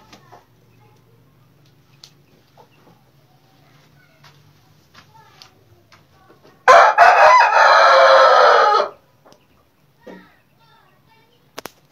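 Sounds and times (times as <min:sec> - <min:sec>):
rooster crowing: 0:06.7 - 0:09.0.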